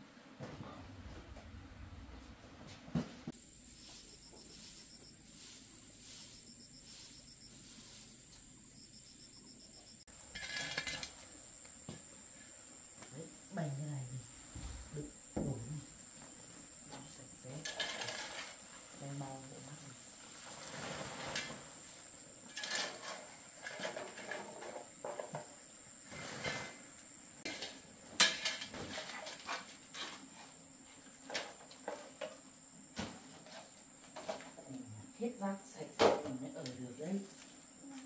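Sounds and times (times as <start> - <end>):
high-pitched insect drone: 3.4 - 10.0.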